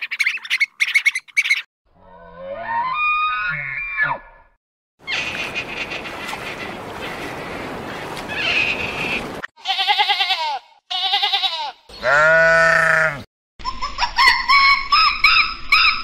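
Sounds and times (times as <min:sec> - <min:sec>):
sheep bleating: 0:09.6 - 0:13.3.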